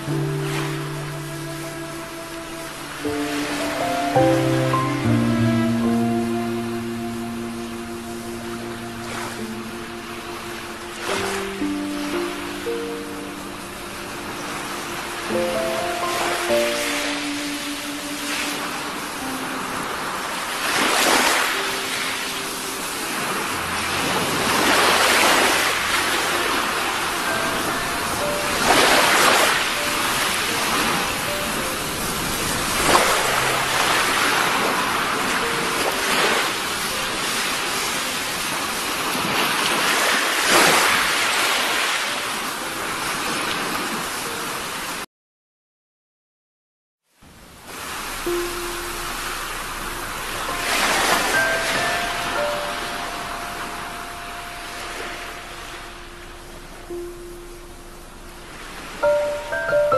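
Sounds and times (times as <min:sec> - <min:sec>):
small waves breaking on beach: 0:00.0 - 0:45.1, 0:47.2 - 0:59.9.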